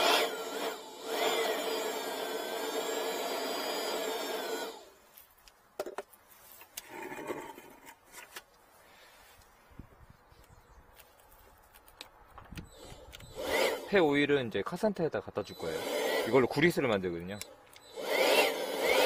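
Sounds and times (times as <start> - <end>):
cordless blower whining: 0.0 - 5.0, 12.6 - 14.3, 15.4 - 19.0.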